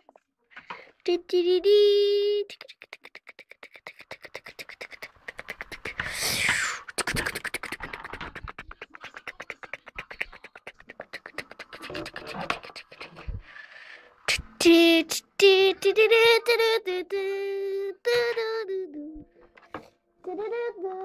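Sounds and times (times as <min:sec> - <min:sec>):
child making mouth sound effects: 0:01.1 - 0:13.4, 0:14.3 - 0:14.5
rapid mouth clicking: 0:02.5 - 0:13.4
breathy hiss: 0:04.0 - 0:07.1, 0:11.2 - 0:14.6.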